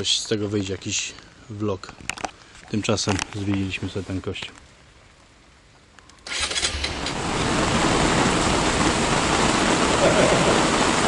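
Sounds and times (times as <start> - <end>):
heavy rain pouring: 6.2 - 11.0.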